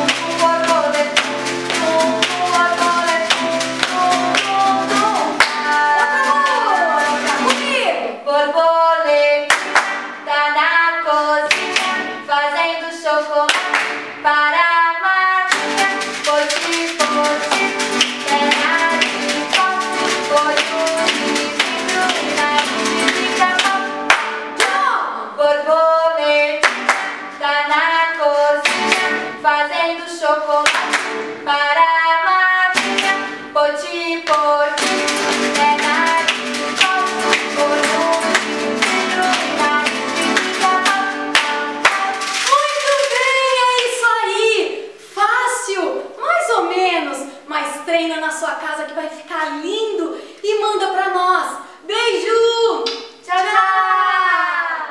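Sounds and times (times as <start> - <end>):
strummed acoustic guitar: 0.0 - 7.8, 15.5 - 24.8, 28.3 - 29.4, 32.6 - 33.6, 34.7 - 43.3
children's song singing: 0.0 - 54.9
sharp hand claps: 5.4 - 7.6, 9.5 - 10.2, 13.5 - 14.1, 17.4 - 24.8, 26.6 - 27.4, 28.6 - 29.2, 30.6 - 31.3, 34.3 - 43.2, 52.8 - 53.5.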